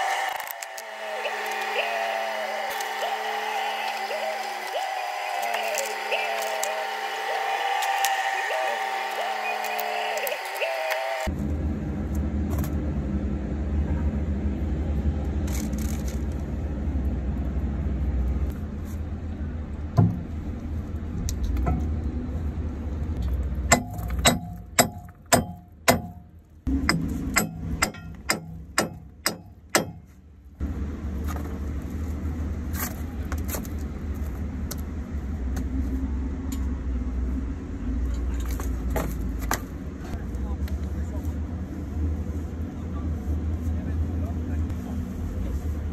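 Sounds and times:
hammer blows on steel: 0:23.7 - 0:30.2.

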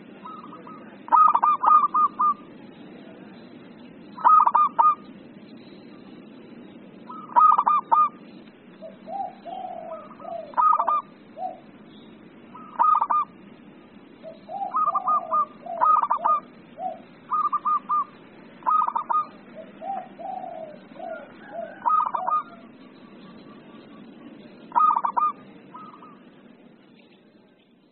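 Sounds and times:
dove cooing: 0:00.0 - 0:02.6, 0:04.2 - 0:05.1, 0:07.1 - 0:08.2, 0:08.8 - 0:11.8, 0:12.5 - 0:13.4, 0:14.2 - 0:26.4
low background noise: 0:00.0 - 0:27.9.

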